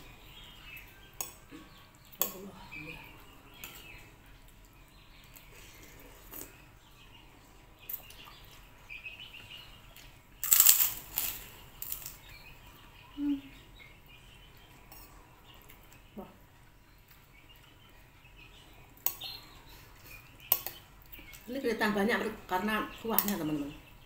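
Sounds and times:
quiet chewing: 3.2 - 7.1, 14.4 - 21.5.

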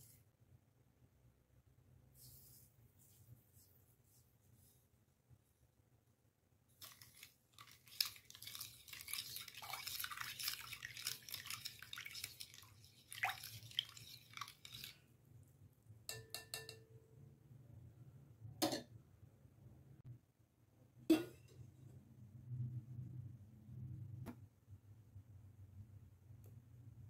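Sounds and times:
whisking in a glass bowl: 6.8 - 15.1
taps on a glass bowl: 16.1 - 16.9.

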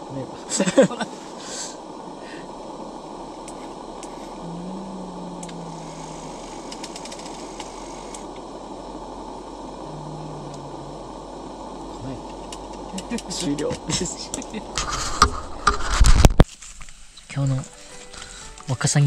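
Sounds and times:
short low hums: 0.0 - 16.2
steady low rumbling: 0.0 - 16.4.

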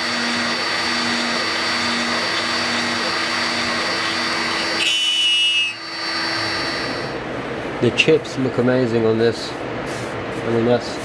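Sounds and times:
router spindle milling plastic: 0.0 - 7.1
high-pitched cutting squeal: 0.0 - 7.2.

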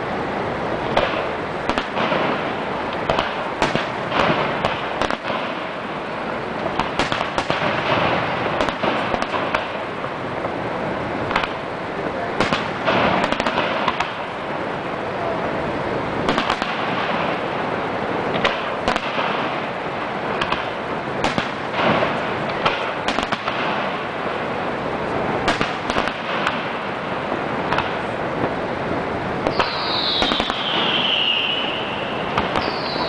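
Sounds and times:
fireworks bursting with crackle: 0.0 - 33.0
high falling whistle: 29.5 - 33.0.

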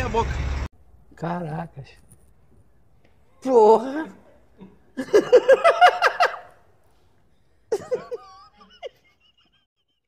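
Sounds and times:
man laughing: 5.0 - 6.6, 7.7 - 10.0.

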